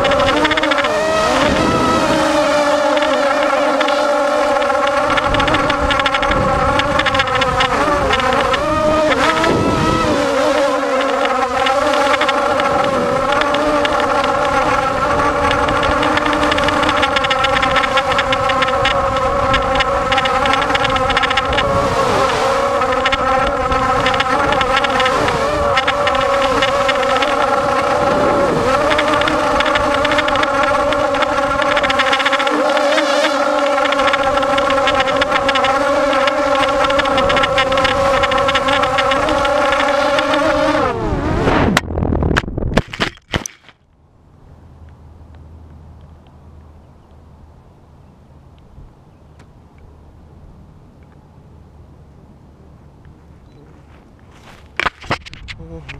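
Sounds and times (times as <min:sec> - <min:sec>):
drone motors whining: 0:00.0 - 0:43.7.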